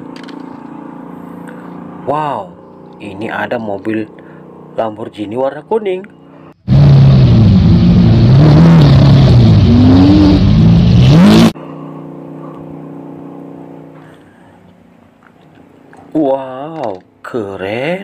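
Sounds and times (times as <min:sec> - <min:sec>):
car engine revving: 0:06.6 - 0:14.4.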